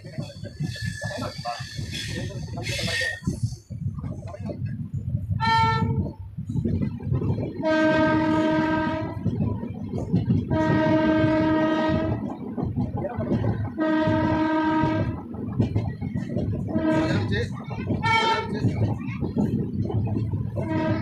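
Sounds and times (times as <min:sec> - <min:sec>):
train coaches rumbling on rails: 0:00.0 - 0:21.0
locomotive horn blasts: 0:05.4 - 0:06.1, 0:07.6 - 0:09.3, 0:10.5 - 0:12.3, 0:13.8 - 0:15.2, 0:16.7 - 0:17.3, 0:20.6 - 0:21.0.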